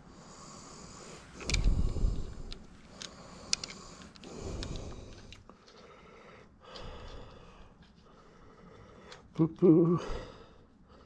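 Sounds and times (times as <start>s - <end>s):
quiet breathing: 0.0s - 11.0s
light clicks of bike parts: 1.4s - 6.0s.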